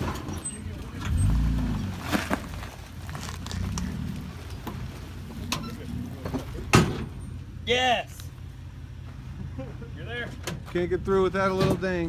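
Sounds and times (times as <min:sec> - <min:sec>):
rocks cracking under tyres: 0:00.0 - 0:05.5.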